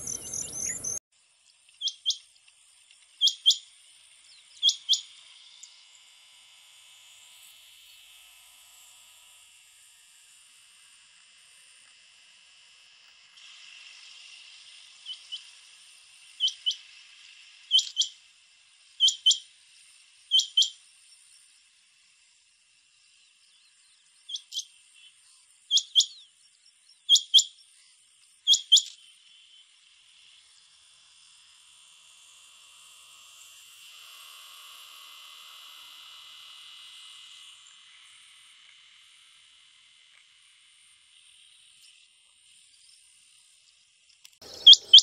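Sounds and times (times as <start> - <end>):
quail whistled calls: 0.0 - 1.0, 3.2 - 3.6, 4.6 - 5.0, 16.4 - 16.8, 17.7 - 18.1, 19.0 - 19.4, 20.3 - 20.8, 25.7 - 26.2, 27.1 - 27.5, 28.5 - 29.0, 44.5 - 45.0
insects buzzing in grass: 0.0 - 45.0.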